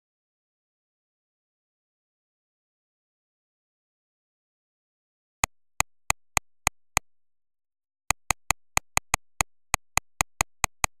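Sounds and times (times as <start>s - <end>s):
sharp dry clicks: 5.4s - 7.1s, 8.1s - 11.0s.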